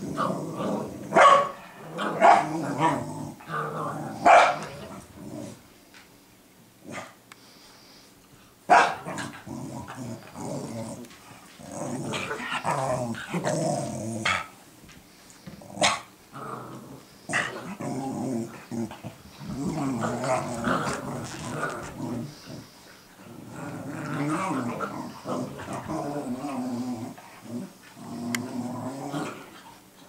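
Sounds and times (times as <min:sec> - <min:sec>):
puppies growling: 0:00.0 - 0:05.7, 0:09.0 - 0:14.6, 0:15.4 - 0:30.0
puppy barks: 0:01.1 - 0:02.5, 0:04.2 - 0:04.7, 0:08.7 - 0:09.3.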